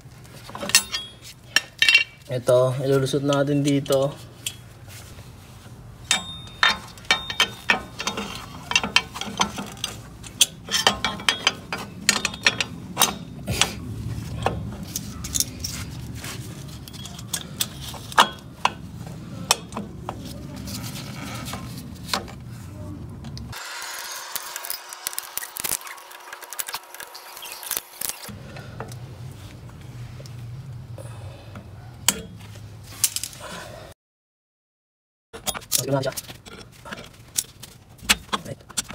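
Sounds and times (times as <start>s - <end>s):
metallic clicks and clinks: 6.1s - 13.7s, 16.7s - 18.8s.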